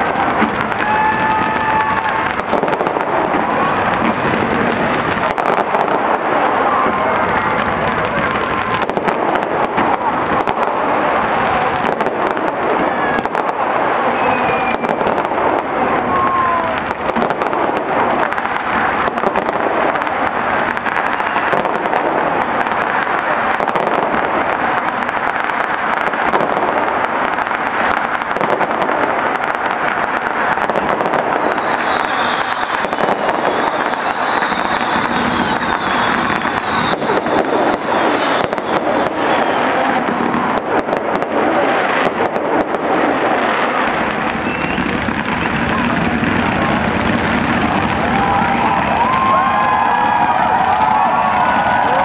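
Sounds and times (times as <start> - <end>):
fireworks crackling: 0.0 - 52.0
falling firework whistles: 0.4 - 4.2, 11.6 - 15.3, 20.8 - 22.0, 29.5 - 41.0, 43.5 - 52.0.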